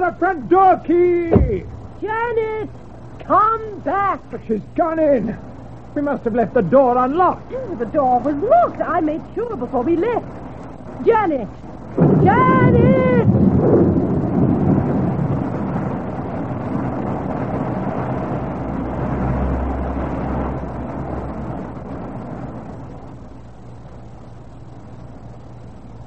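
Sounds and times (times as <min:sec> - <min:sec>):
low rumble of thunder: 0:01.3 - 0:02.2, 0:11.9 - 0:22.9
rain: 0:09.8 - 0:26.0.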